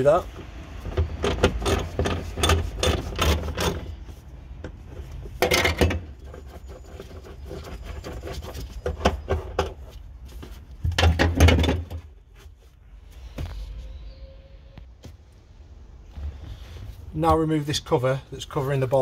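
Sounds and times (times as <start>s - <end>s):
scraping handling noise: 0.0s - 14.0s.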